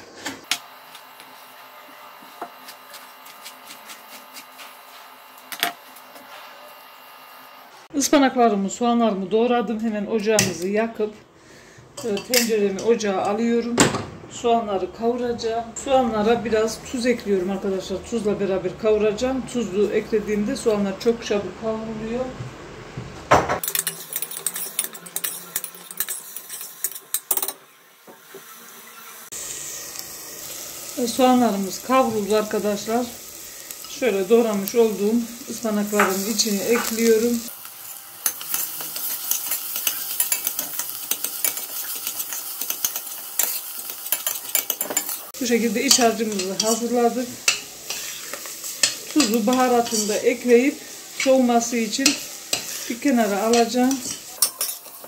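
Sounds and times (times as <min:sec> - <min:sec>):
onions frying and crackling: 0:00.0 - 0:07.9, 0:23.6 - 0:55.0.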